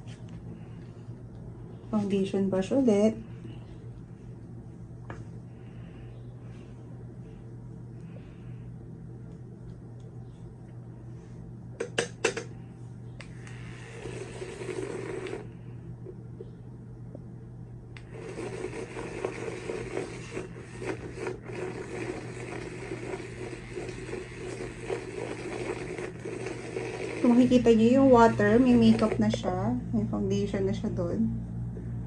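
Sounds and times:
electric brush spinner whirring: 0:13.2 - 0:15.7, 0:18.0 - 0:29.7.

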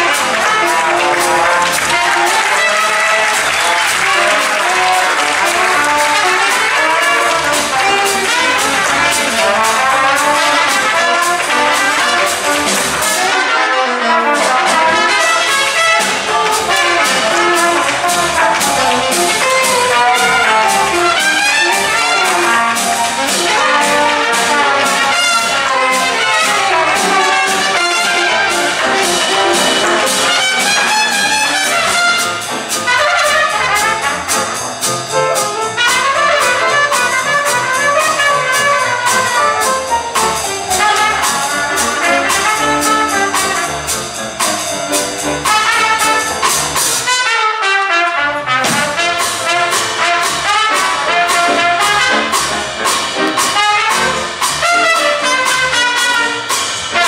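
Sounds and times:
drums keeping beat: 0:00.0 - 0:57.0
piano: 0:00.0 - 0:57.0
trumpet solo: 0:00.0 - 0:57.0
string bass: 0:14.4 - 0:47.1.

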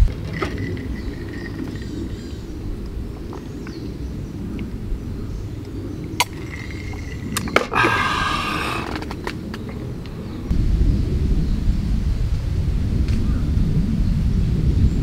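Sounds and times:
low outdoor rumble: 0:00.0 - 0:15.0
breathy sound: 0:07.6 - 0:09.2.

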